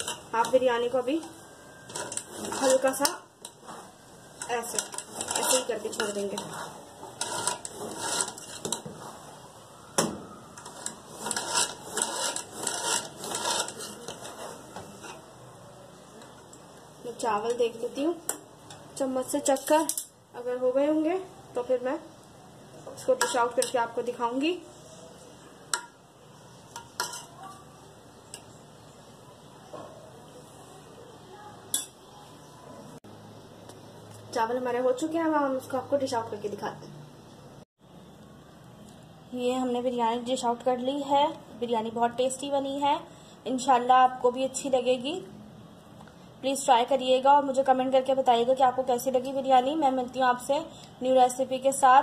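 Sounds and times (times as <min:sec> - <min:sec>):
metal spoon scraping rice: 0:00.0 - 0:00.7, 0:01.8 - 0:08.9, 0:10.6 - 0:15.3, 0:23.0 - 0:23.8, 0:26.7 - 0:27.6.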